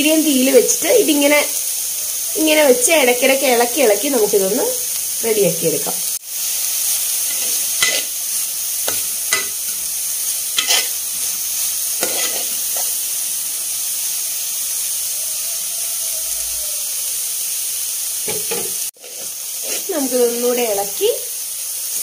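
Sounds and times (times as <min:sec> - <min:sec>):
cabbage sizzling in metal pot: 0:00.0 - 0:22.0
stirring scrapes against pot: 0:10.6 - 0:11.4, 0:12.0 - 0:12.9, 0:18.3 - 0:20.0.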